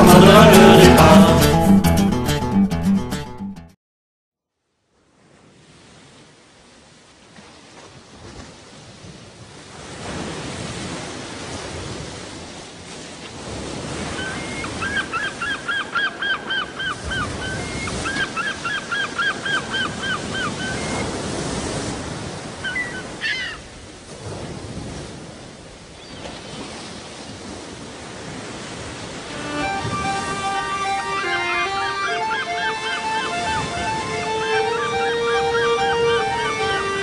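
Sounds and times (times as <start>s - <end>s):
wind: 4.6s - 37.0s
water splashing around canoe: 5.2s - 14.8s
quick repeated high calls: 29.3s - 37.0s
rising and falling call: 29.3s - 37.0s.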